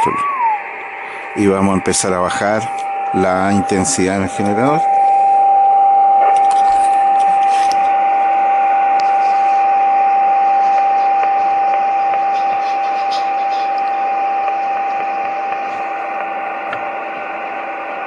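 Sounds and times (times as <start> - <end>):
radio beat-note whistle: 0.0 - 17.8
receiver hiss: 0.0 - 18.0.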